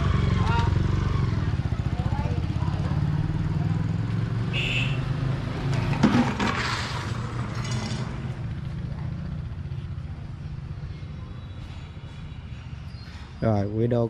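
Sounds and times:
motorbike engine running: 0.0s - 4.8s.

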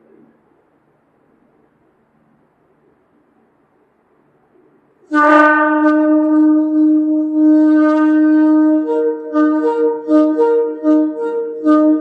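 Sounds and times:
ram's horn blast: 5.1s - 12.0s.

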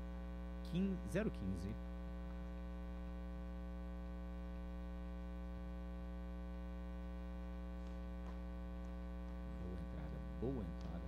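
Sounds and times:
electrical mains hum: 0.0s - 11.0s.

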